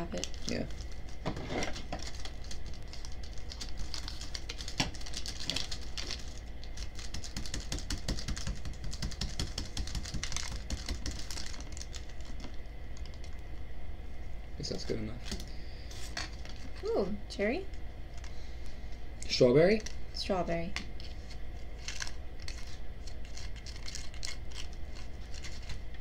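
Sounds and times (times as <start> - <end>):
packets crinkling and rustling: 0.0 - 13.4, 21.0 - 26.0.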